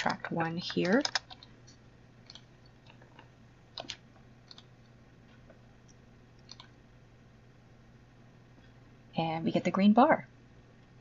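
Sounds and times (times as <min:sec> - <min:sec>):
computer keyboard keystrokes: 0:00.0 - 0:03.0, 0:03.8 - 0:04.7, 0:06.4 - 0:06.7.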